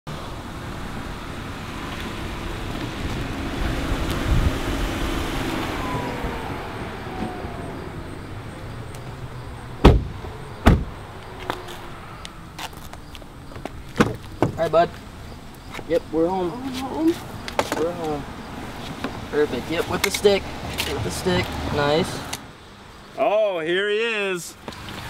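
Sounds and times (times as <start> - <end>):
car driving up: 0.1 - 22.5
car doors slamming: 9.0 - 11.8, 13.6 - 14.8.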